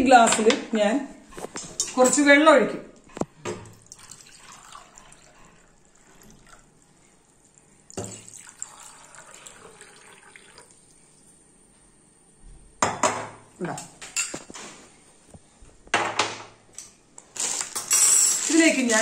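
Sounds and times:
water pouring into glass: 3.8 - 11.2.

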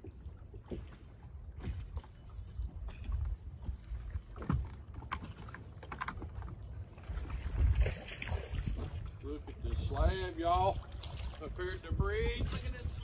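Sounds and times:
water lapping against boat hull: 0.0 - 13.0
wind rumble on microphone: 6.4 - 13.0.

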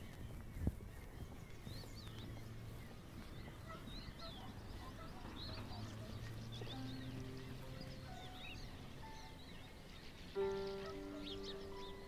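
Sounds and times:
small birds chirping: 0.0 - 12.0
low musical drone: 4.5 - 12.0.

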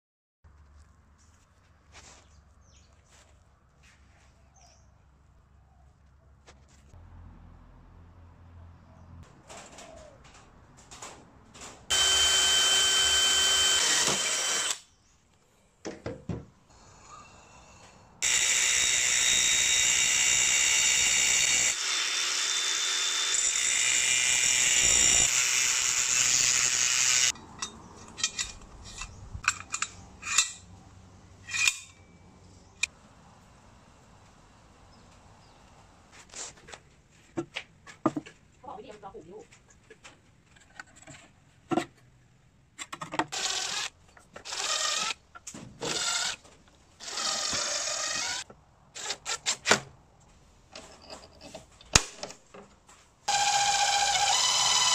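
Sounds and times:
angle grinder cutting steel: 11.9 - 14.8, 18.2 - 27.5, 53.3 - 54.9
cordless drill boring into steel: 11.9 - 14.9, 18.2 - 27.4, 43.3 - 43.9, 44.5 - 45.2, 47.0 - 48.4, 53.3 - 54.9.

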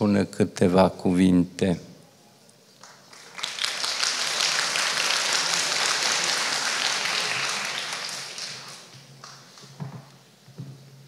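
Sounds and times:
audience applause: 2.8 - 9.6.

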